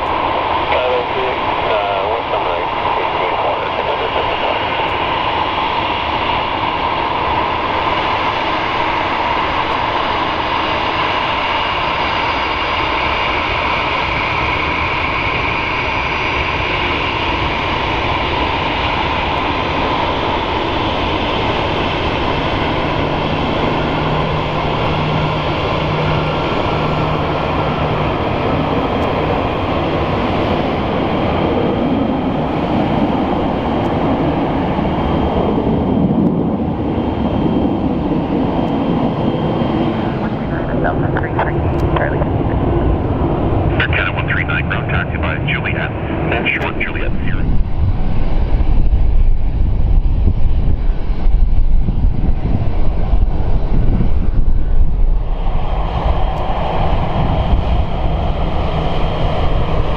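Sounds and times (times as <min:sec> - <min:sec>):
jet engine whine: 0:00.0 - 0:59.9
low rumble: 0:19.6 - 0:59.9.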